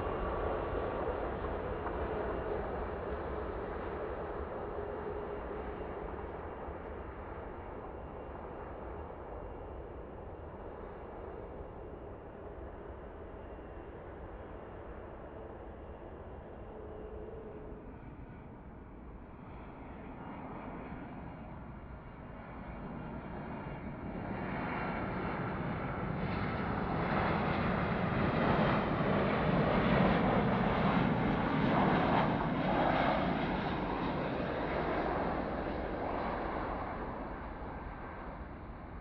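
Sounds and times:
jet engines roaring and whining: 20.8 - 39.0.

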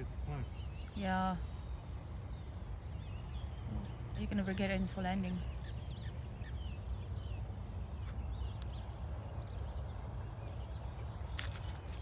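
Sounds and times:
small birds chirping: 0.0 - 12.0
wind rumbling on microphone: 0.0 - 12.0
glider scraping on grass: 11.4 - 12.0.

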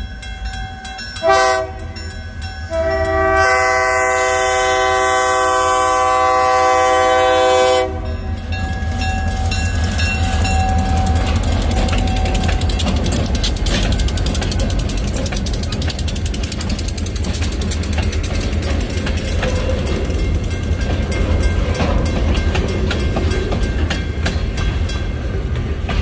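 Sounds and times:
locomotive rumbling by: 0.0 - 26.0
freight cars rattling over rails: 5.6 - 26.0.

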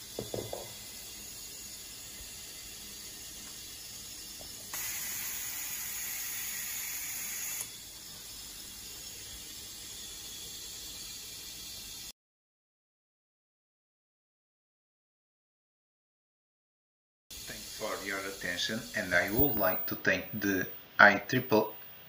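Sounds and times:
compressed air hissing: 0.0 - 12.1, 17.4 - 20.9.

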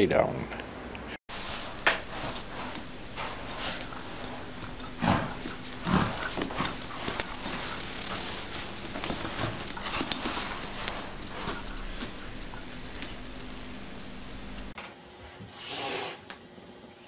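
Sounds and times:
bed scraping over rug: 1.3 - 14.7
dog tugging at fabric bed: 1.7 - 13.3.

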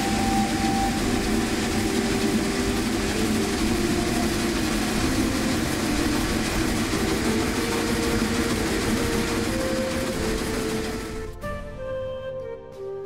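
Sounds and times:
shifting steady tones: 0.0 - 11.9
steam locomotive rumble and hiss: 0.0 - 12.2.

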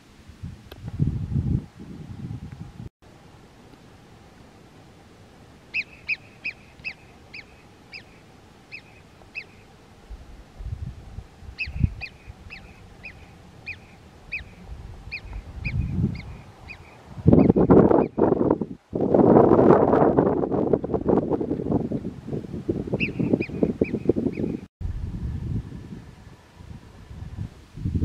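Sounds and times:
animal high-pitched calls: 5.7 - 9.7, 11.6 - 18.2.

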